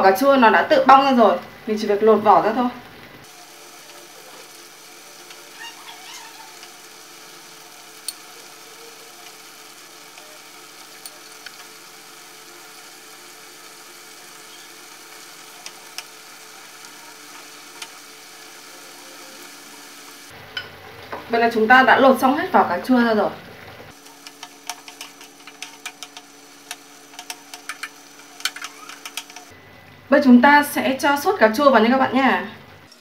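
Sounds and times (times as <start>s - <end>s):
pan simmering sizzle: 0.0s - 30.1s
chopsticks clicking on pan: 8.0s - 8.3s, 24.1s - 29.5s.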